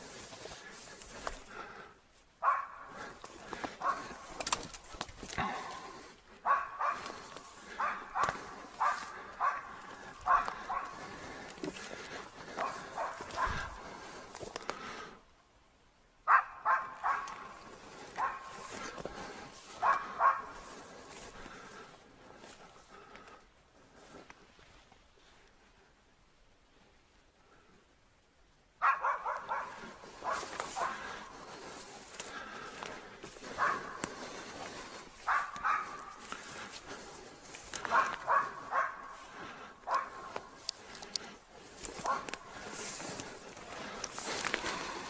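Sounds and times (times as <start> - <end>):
dog barking: 2.4 - 3.1, 3.8 - 4.2, 6.4 - 11.2, 12.6 - 13.8, 16.3 - 18.9, 19.7 - 20.8, 28.8 - 31.3, 33.4 - 34.2, 35.2 - 36.3, 37.8 - 39.2, 39.8 - 40.5, 42.0 - 42.4.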